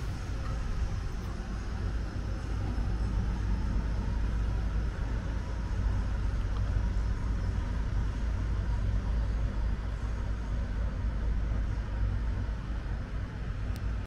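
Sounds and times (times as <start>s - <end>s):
ship engines rumbling: 0.0s - 14.0s.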